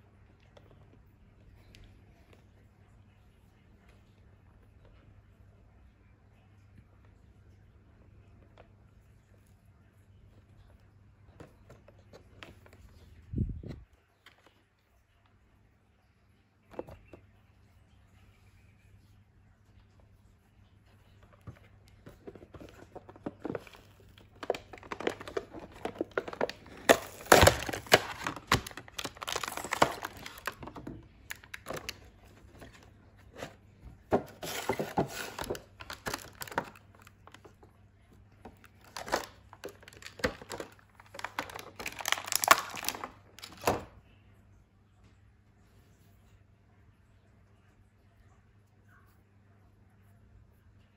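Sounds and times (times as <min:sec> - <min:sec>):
plastic packaging crinkling and tearing: 0:22.1 - 0:37.6, 0:38.4 - 0:43.9.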